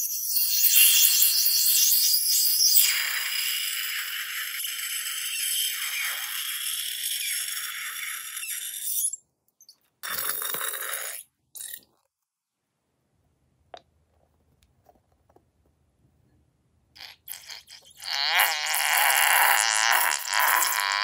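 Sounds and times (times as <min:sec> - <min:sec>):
slime sputtering from nozzle: 0:17.0 - 0:21.0.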